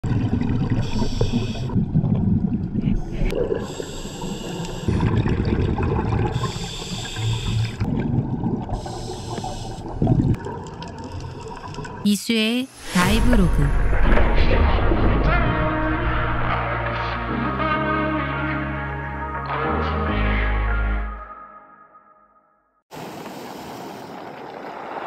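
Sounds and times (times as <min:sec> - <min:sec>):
low bubbling of exhaled air: 0:00.0 - 0:12.0
hissing scuba regulator inhalations: 0:00.8 - 0:01.8, 0:03.1 - 0:05.1, 0:06.3 - 0:07.9, 0:08.8 - 0:10.0.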